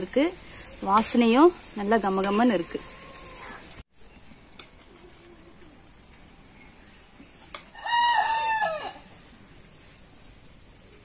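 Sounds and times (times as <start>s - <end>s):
rooster crowing: 2.7s - 3.7s, 7.7s - 9.2s.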